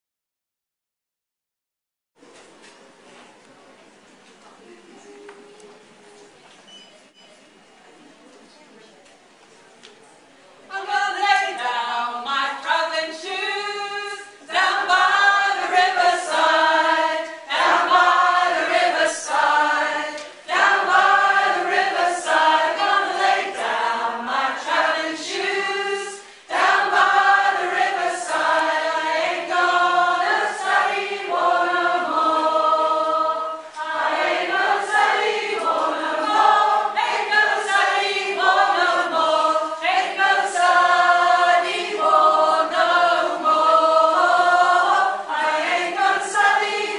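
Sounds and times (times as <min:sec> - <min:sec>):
choir singing: 0:10.7 - 0:46.9.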